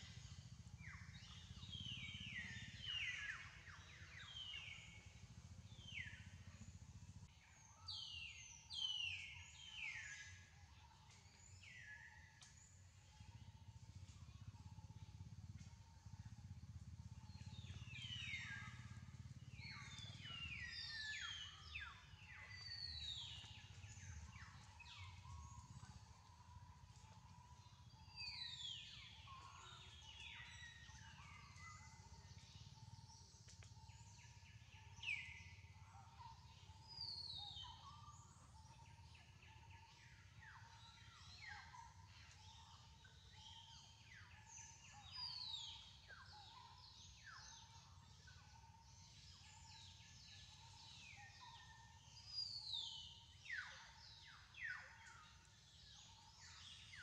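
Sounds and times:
birds chirping: 0:00.0 - 0:06.9, 0:17.2 - 0:57.0
low outdoor rumble: 0:00.0 - 0:07.7, 0:12.6 - 0:39.4
faint steady tone: 0:00.0 - 0:57.0.

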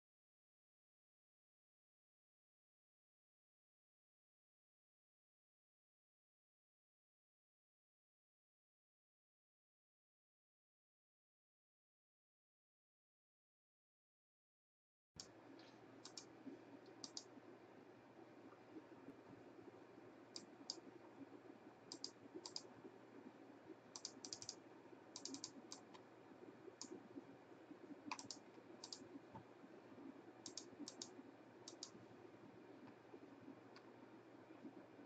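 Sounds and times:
low room tone hum: 0:15.2 - 0:35.0
computer key clicks: 0:15.6 - 0:16.3, 0:16.9 - 0:17.3, 0:21.9 - 0:22.7, 0:24.0 - 0:24.6, 0:25.2 - 0:26.0, 0:28.1 - 0:29.0, 0:30.4 - 0:31.1, 0:31.7 - 0:32.0.

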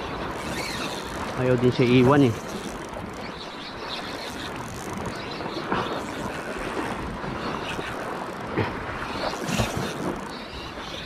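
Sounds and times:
sea washing: 0:00.0 - 0:11.0.

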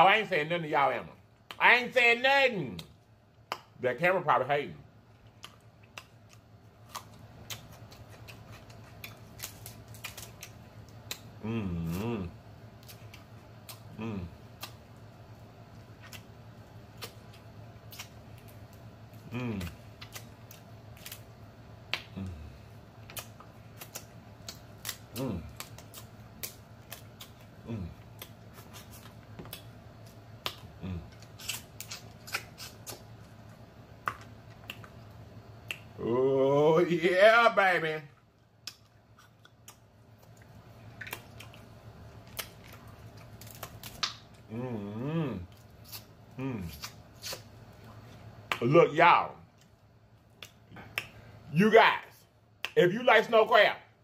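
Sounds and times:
chewing and lip smacking: 0:05.1 - 0:12.0, 0:12.8 - 0:21.3, 0:23.0 - 0:36.0, 0:38.2 - 0:44.5, 0:49.5 - 0:51.2
crab shells cracking: 0:05.4 - 0:11.3, 0:29.4 - 0:33.1, 0:38.6 - 0:44.4
person humming moan: 0:11.4 - 0:12.4, 0:14.0 - 0:14.3, 0:19.3 - 0:19.8, 0:22.2 - 0:22.6, 0:25.2 - 0:25.5, 0:27.6 - 0:28.0, 0:30.8 - 0:31.0, 0:36.0 - 0:36.8, 0:44.5 - 0:45.5, 0:46.4 - 0:46.7.

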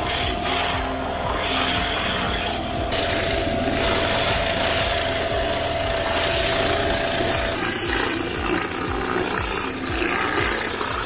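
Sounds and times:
pressure washer running: 0:00.0 - 0:11.0
steady whine: 0:00.0 - 0:11.0
water jetting on roof tiles: 0:06.0 - 0:11.0.

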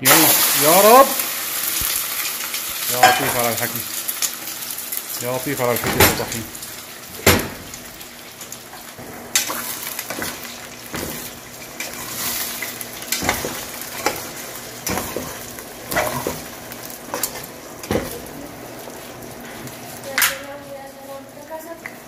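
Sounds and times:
eggs sizzling in hot oil: 0:00.0 - 0:22.0
utensil scraping metal pot: 0:09.0 - 0:18.1.

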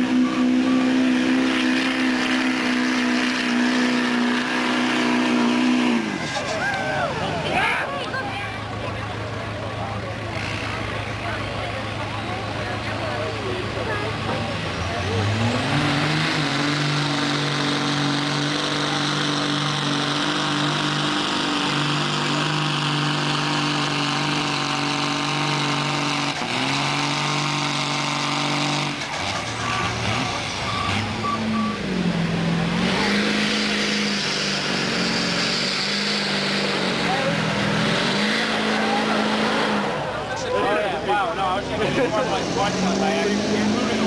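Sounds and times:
diesel truck engine at high revs: 0:00.0 - 0:44.0
short high beeps: 0:30.6 - 0:31.8.

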